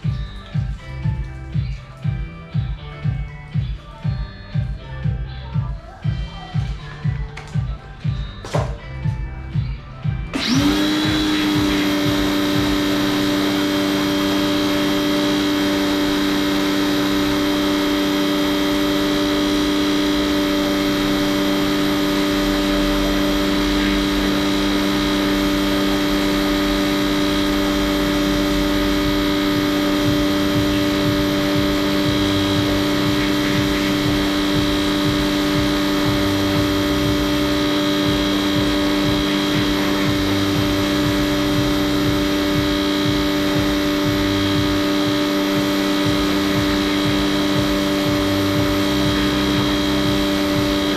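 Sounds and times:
small electric motor whining: 0:10.3 - 0:50.9.

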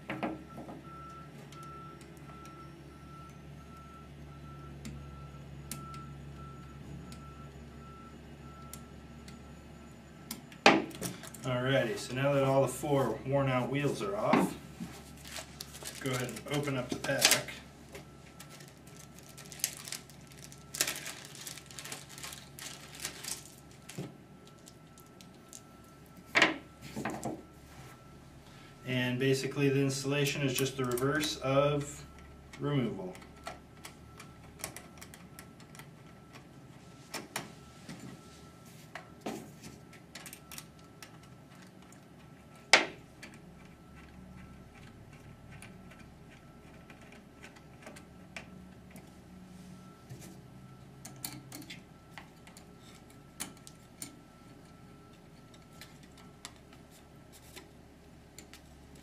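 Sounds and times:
plastic bag crinkling: 0:15.0 - 0:17.6, 0:18.3 - 0:25.6.

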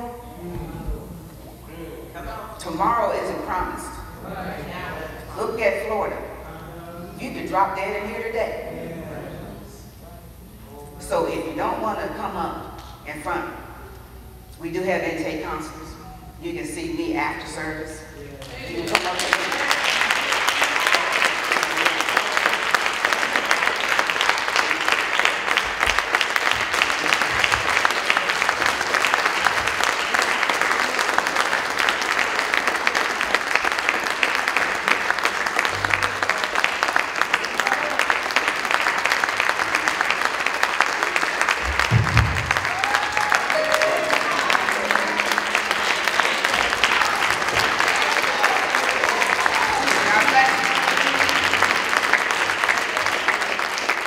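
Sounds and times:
congregation clapping: 0:18.4 - 0:54.0
band playing low notes: 0:35.7 - 0:36.6, 0:41.6 - 0:47.6.

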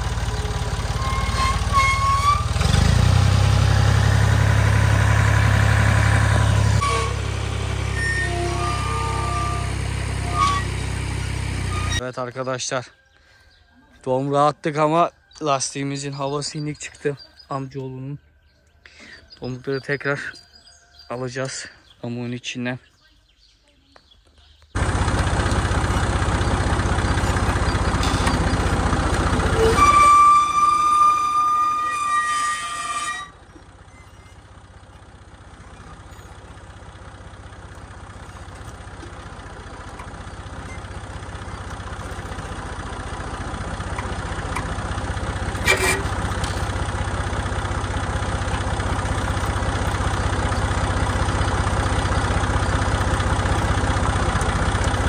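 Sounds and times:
tractor diesel engine running: 0:00.0 - 0:12.8, 0:24.3 - 0:55.0.

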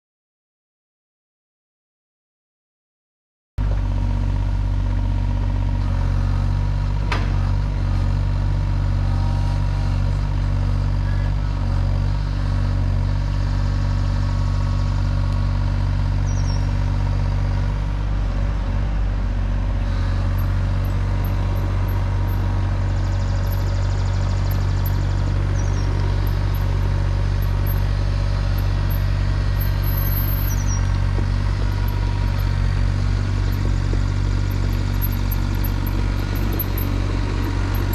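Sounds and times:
diesel engine running: 0:03.6 - 0:37.9
fast low pulsing: 0:19.0 - 0:37.9.

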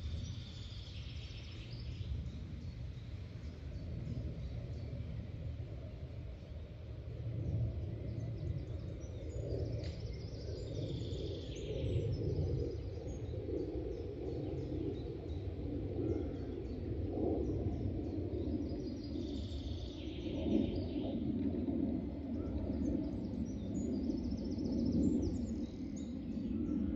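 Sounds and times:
birds singing: 0:07.5 - 0:26.9.

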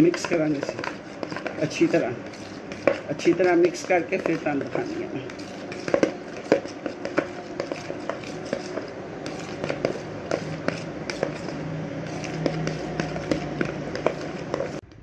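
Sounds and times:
spoon scraping plastic bowl: 0:00.0 - 0:14.9.

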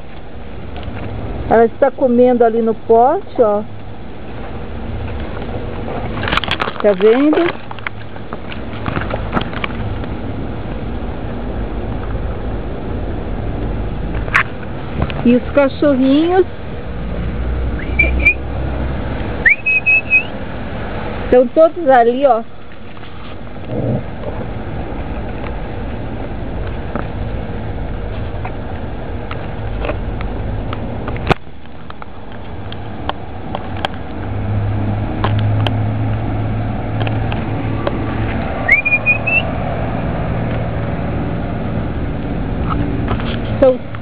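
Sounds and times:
rustling leaves: 0:00.0 - 0:44.0
short rising squeak: 0:17.8 - 0:18.4, 0:19.4 - 0:20.4, 0:38.6 - 0:39.5.

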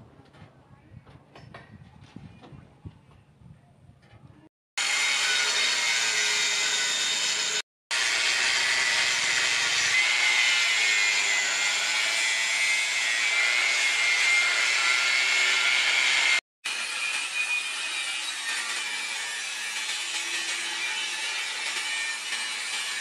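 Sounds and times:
angle grinder cutting steel: 0:04.8 - 0:23.0.

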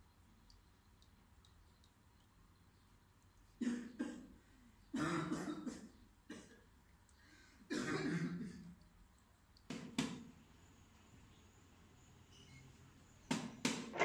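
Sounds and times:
man coughing: 0:05.0 - 0:06.5, 0:07.7 - 0:08.6.

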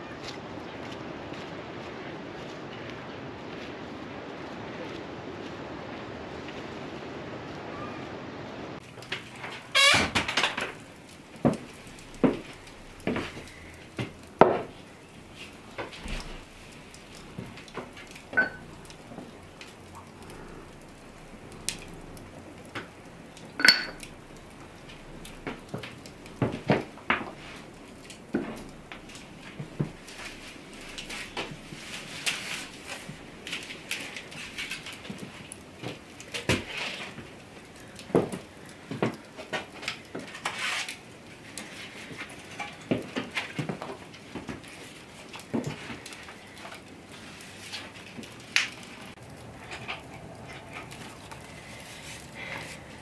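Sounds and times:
kitchenware knocking and clinking: 0:18.4 - 0:18.6, 0:23.6 - 0:24.1.

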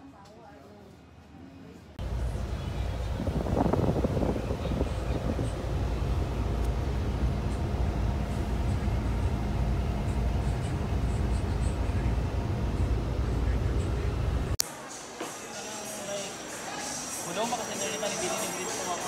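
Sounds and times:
faint steady hum: 0:00.8 - 0:14.6
vehicle engine and road rumble: 0:01.9 - 0:14.6.

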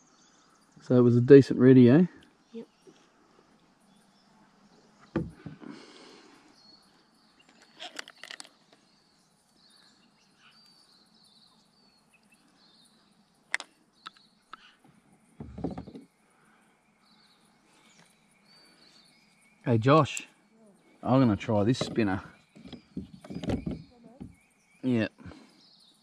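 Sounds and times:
faint bird chirps: 0:00.0 - 0:26.0
quiet river ambience: 0:00.0 - 0:26.0
dull thump: 0:05.0 - 0:05.8, 0:15.4 - 0:16.1, 0:21.7 - 0:24.4
fishing tackle clicks and knocks: 0:07.5 - 0:08.8, 0:21.7 - 0:23.8.

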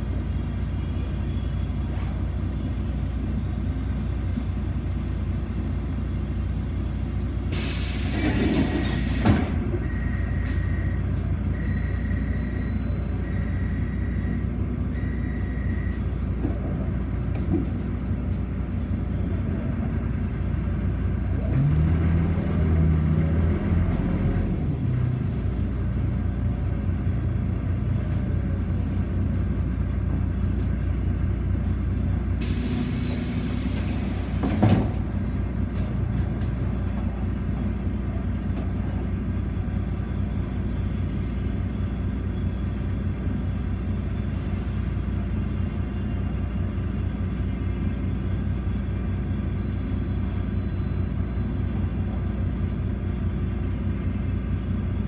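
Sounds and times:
bus engine rumble: 0:00.0 - 0:55.0
air hiss: 0:07.5 - 0:09.3.

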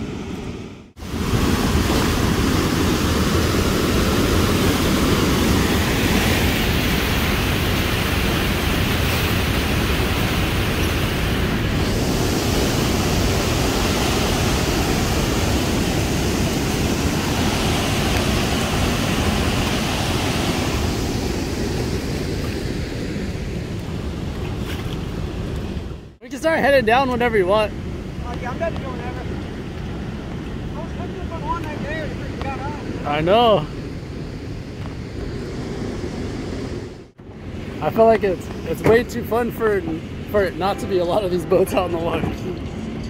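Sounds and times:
rushing water: 0:00.9 - 0:33.7, 0:35.2 - 0:43.0
wind buffeting microphone: 0:01.0 - 0:43.0.

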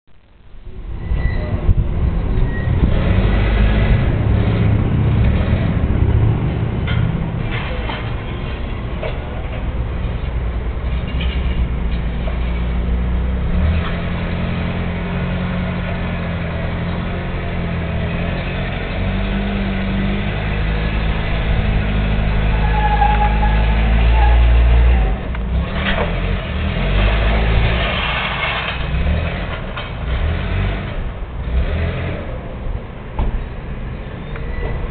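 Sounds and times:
forklift engine revving: 0:01.7 - 0:08.2, 0:09.9 - 0:32.4
knocks and clanks: 0:04.3 - 0:14.4, 0:33.1 - 0:33.6.

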